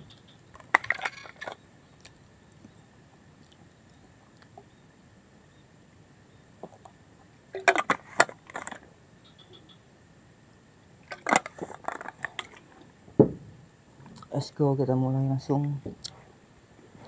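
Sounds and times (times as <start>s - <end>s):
sharp close clicking and crunching: 0.1s - 2.7s, 11.0s - 12.8s
thump: 13.2s - 13.5s.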